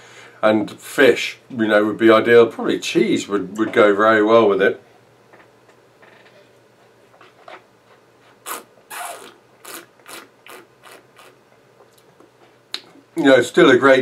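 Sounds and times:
wet sucking and smacking mouth: 8.3 - 12.1.

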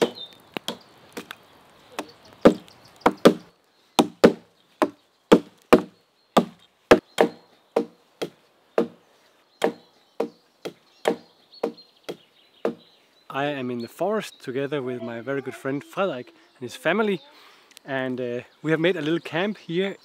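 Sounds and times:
hatchets chopping into tree trunk: 2.0 - 9.0.

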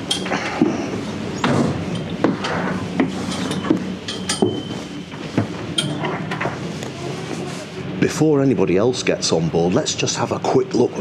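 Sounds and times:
footsteps on stairs: 0.4 - 5.7.

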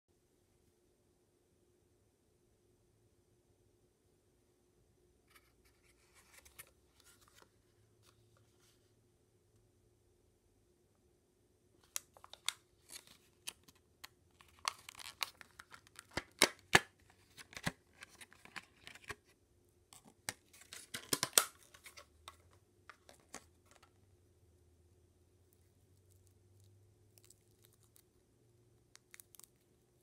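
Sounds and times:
plastic blister pack crackling: 11.9 - 19.2, 20.3 - 22.1.

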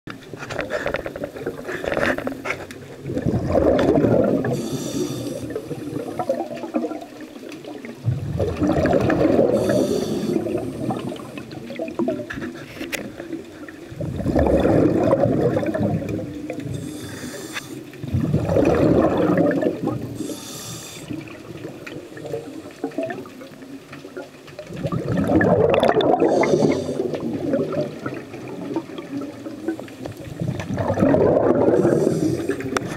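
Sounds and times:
exhaled bubbles burbling underwater: 0.2 - 32.9
regulator inhalation hiss: 4.5 - 6.2, 9.5 - 11.4, 16.7 - 17.9, 20.1 - 21.2, 26.2 - 27.1, 31.8 - 32.8.

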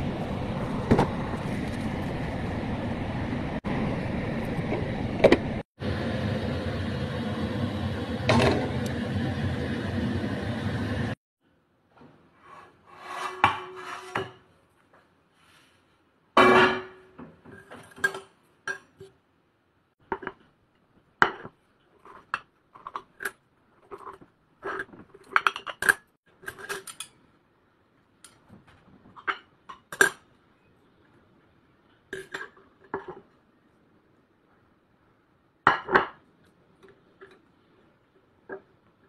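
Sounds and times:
frying pan scraping a plate: 12.4 - 14.5.

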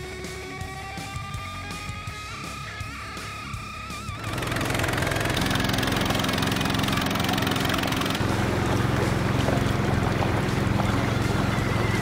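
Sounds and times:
music: 0.0 - 12.0
boat engine running: 3.2 - 12.0
water rushing along hull: 4.2 - 12.0.

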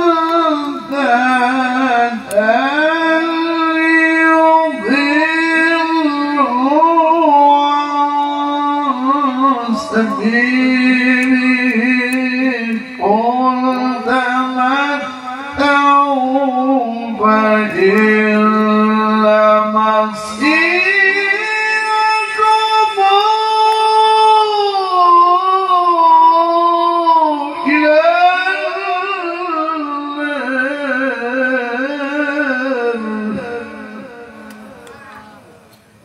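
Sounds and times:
man reciting melodically: 0.0 - 35.9.

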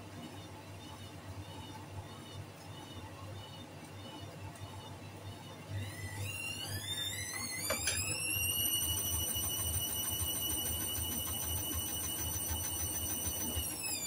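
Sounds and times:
washing machine motor whining: 5.7 - 14.0.

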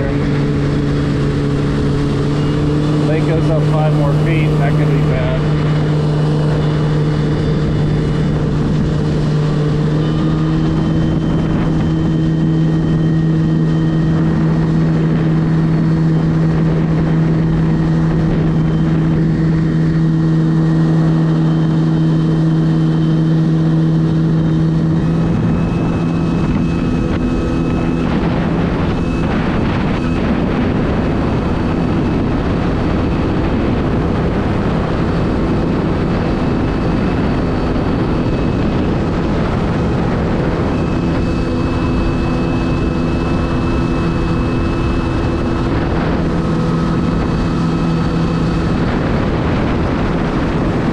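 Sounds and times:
water rushing: 0.0 - 22.9
jet ski engine droning: 0.0 - 50.9.

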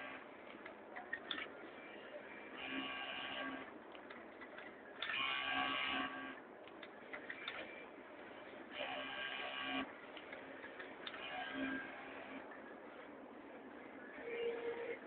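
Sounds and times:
sewing machine whine: 5.0 - 6.4, 10.6 - 12.6, 13.8 - 15.0.

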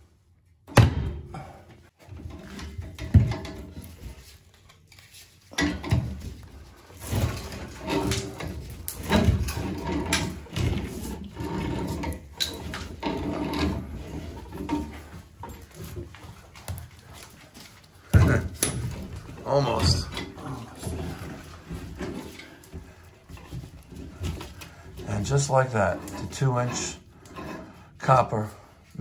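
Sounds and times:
metal scraping: 18.3 - 28.7.

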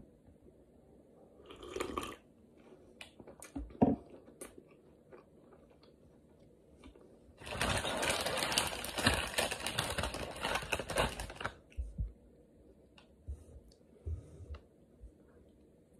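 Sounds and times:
slurping sip from a mug: 1.5 - 2.2.

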